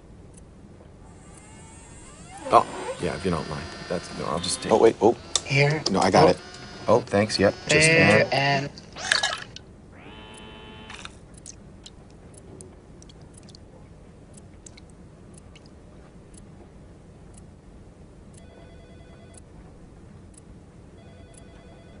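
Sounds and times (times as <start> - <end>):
short electronic tones: 10.0 - 11.2.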